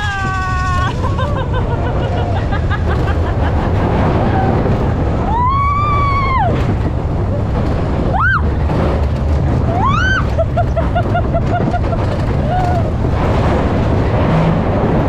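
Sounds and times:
riders screaming: 0.0s - 1.3s, 5.2s - 6.7s, 9.7s - 10.5s, 12.4s - 13.0s
roller coaster running on track: 0.0s - 15.0s.

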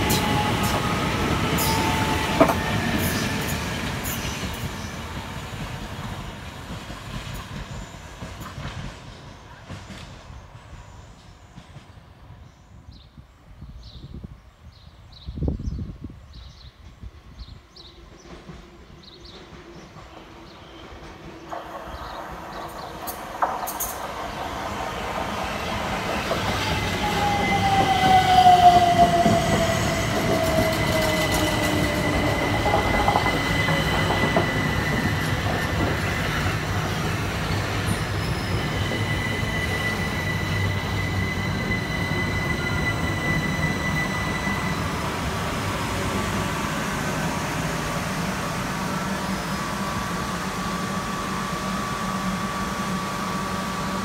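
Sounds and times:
train braking whine: 0.0s - 5.2s, 21.5s - 54.0s
train electrical hum: 21.2s - 54.0s
high steady brake squeal: 37.5s - 45.5s.

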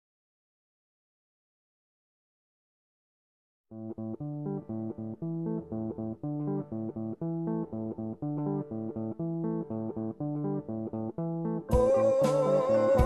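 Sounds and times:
background music with repeating riff: 11.4s - 13.0s.

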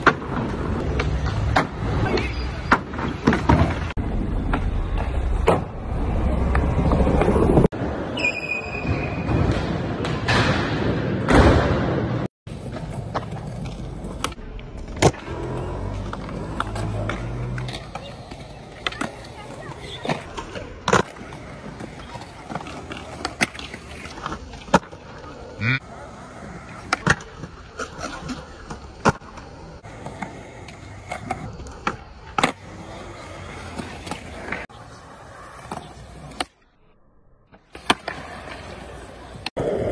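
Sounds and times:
skateboard wheels rolling: 0.0s - 36.6s, 37.5s - 39.9s
skateboard clacking on concrete: 15.0s - 24.9s.

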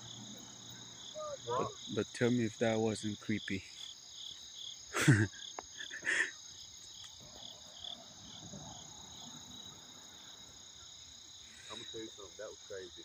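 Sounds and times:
crickets and insects trilling: 0.0s - 13.0s.

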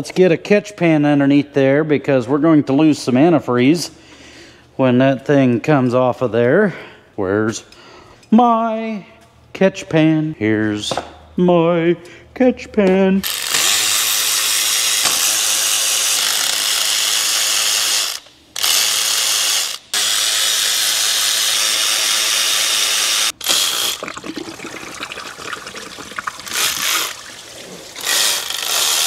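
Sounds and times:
power tool spinning bolts: 13.2s - 24.1s, 26.5s - 27.3s, 28.0s - 29.0s
antifreeze pouring and splashing: 23.7s - 28.5s.

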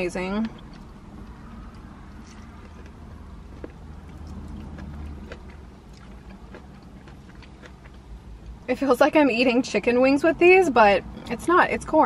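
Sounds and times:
low car interior rumble: 0.0s - 12.0s
chewing and crunching: 0.4s - 8.7s.

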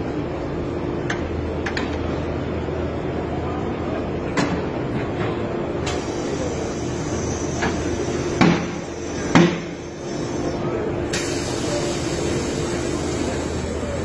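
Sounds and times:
steady hum: 0.0s - 14.0s
air hiss: 5.9s - 14.0s.

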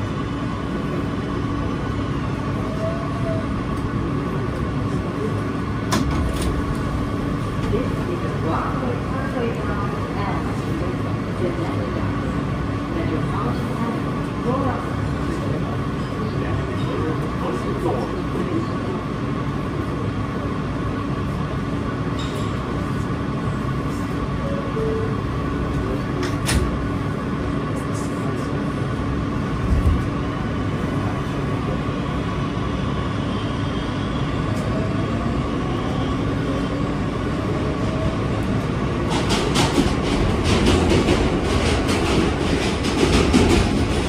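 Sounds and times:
subway train hum and rumble: 0.0s - 44.0s
train doors closing: 1.0s - 10.5s, 23.9s - 32.0s, 33.0s - 44.0s.

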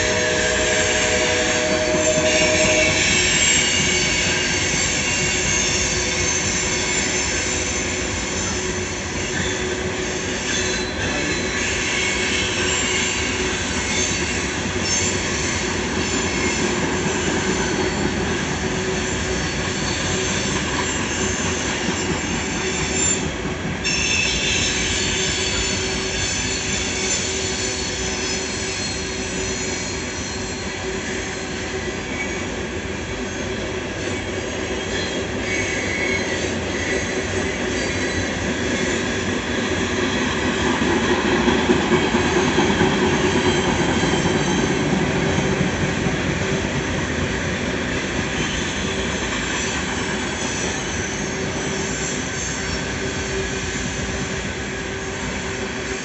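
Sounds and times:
high-pitched wheel squeal: 0.0s - 18.1s, 19.0s - 32.5s, 34.8s - 39.1s, 48.4s - 53.9s
train wheels rumbling on rail: 0.0s - 56.0s.

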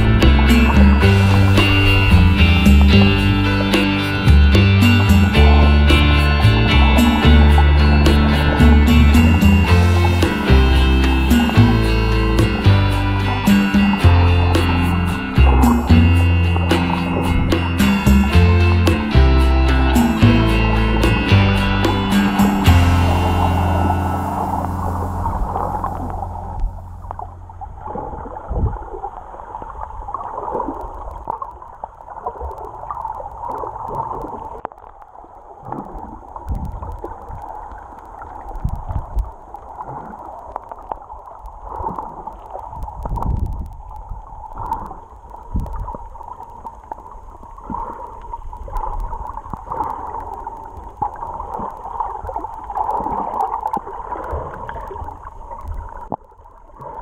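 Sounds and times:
water sloshing underwater: 0.0s - 18.3s, 18.9s - 57.0s
low thumps: 0.0s - 27.9s
steady hum: 0.0s - 28.2s.

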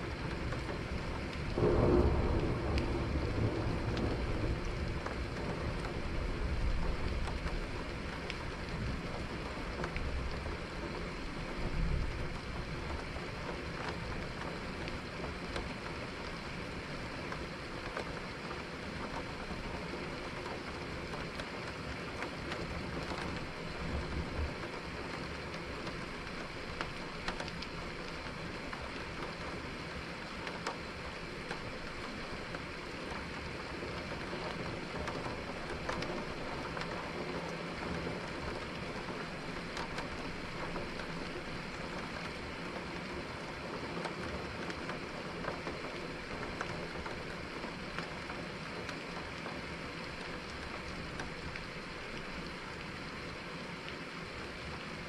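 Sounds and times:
thunder rumbling: 0.0s - 16.6s
steady rain falling: 0.0s - 55.0s.

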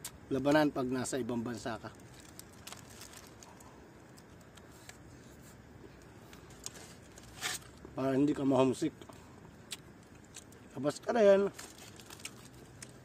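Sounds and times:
quiet outdoor background: 0.0s - 13.0s
wrapper crinkling: 1.6s - 4.9s, 11.4s - 13.0s.

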